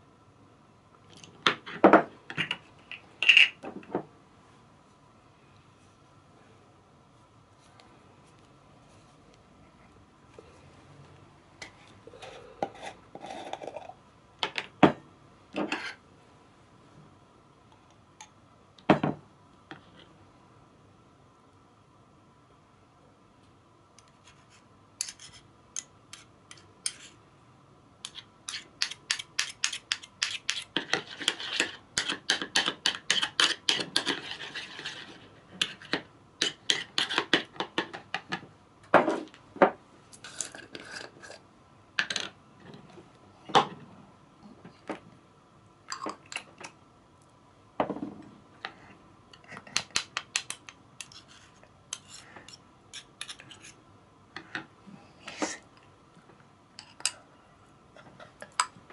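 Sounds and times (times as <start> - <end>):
metal spoons clinking and scraping: 50.4 - 53.8.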